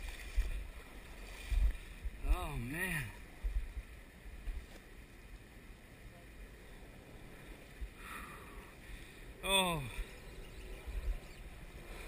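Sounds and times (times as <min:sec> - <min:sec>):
wind buffeting microphone: 0:00.0 - 0:04.7, 0:09.9 - 0:12.0
river water rushing: 0:00.0 - 0:10.3.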